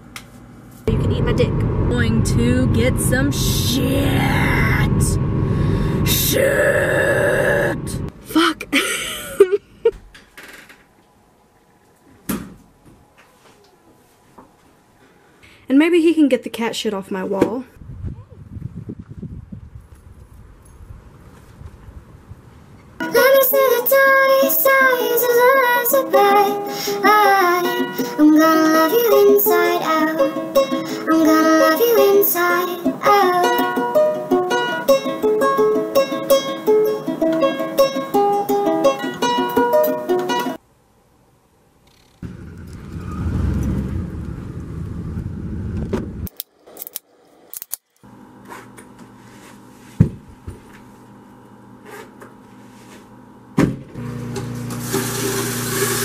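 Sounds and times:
woman singing: 0.9 - 8.1, 23.0 - 34.0
low noise: 0.9 - 9.9
ukulele playing: 23.0 - 40.6.

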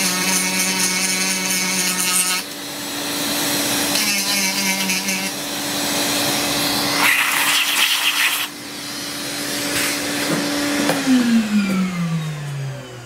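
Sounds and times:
rotary tool grinding and whining: 0.0 - 13.0.

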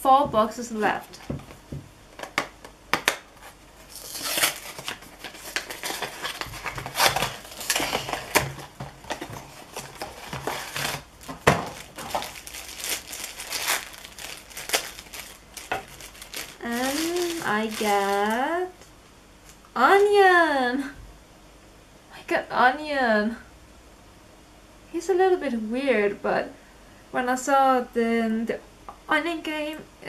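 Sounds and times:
foil bag crinkling: 3.1 - 18.7.

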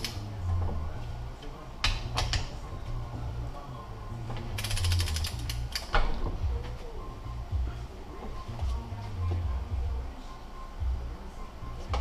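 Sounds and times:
ratchet wrench clicking: 4.6 - 5.9.

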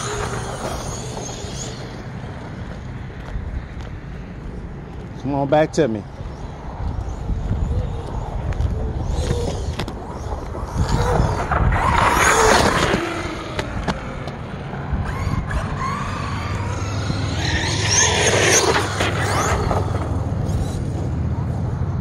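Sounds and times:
rc car electric motor whining: 0.0 - 2.0, 8.8 - 14.3, 14.9 - 21.1.

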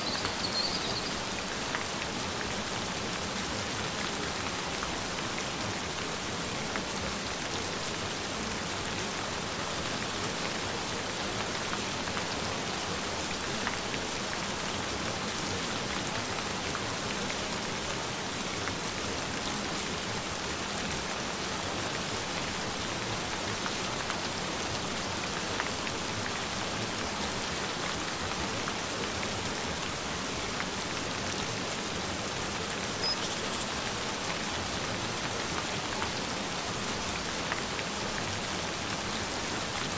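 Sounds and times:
gentle rain hiss: 0.0 - 39.9.

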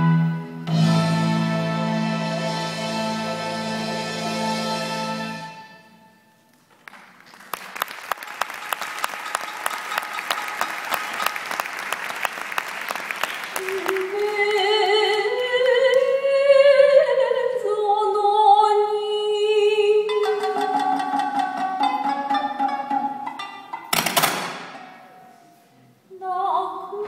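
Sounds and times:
audience applause: 6.7 - 14.4.

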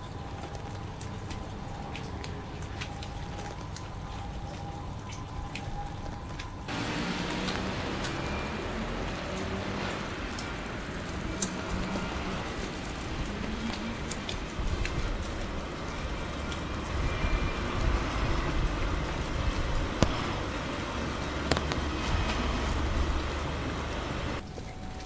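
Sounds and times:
outdoor street noise: 0.0 - 25.0
vehicle rumble: 6.7 - 24.5.

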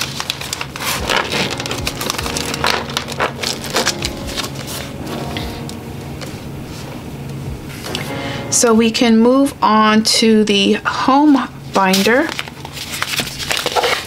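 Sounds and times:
paper envelopes rustling: 0.0 - 4.9, 11.3 - 14.0.

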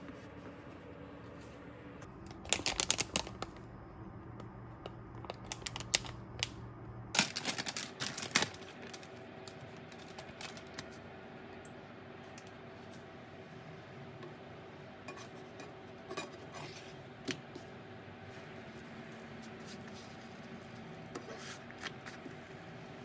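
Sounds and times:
plastic packaging crinkling: 2.3 - 3.6, 7.2 - 11.0.

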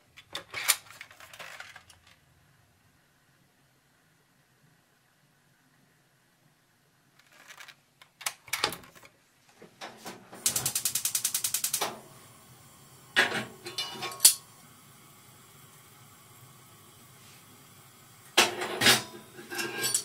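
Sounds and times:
gas burner hissing: 10.3 - 20.0
gas burner igniter ticking: 10.4 - 16.9
metal clanks of pan: 13.2 - 14.4, 18.4 - 20.0.

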